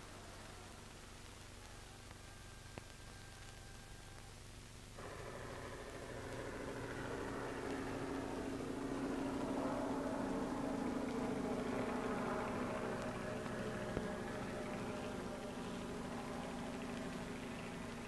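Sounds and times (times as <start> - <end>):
film soundtrack hiss: 0.0 - 18.0
truck engine running: 5.0 - 18.0.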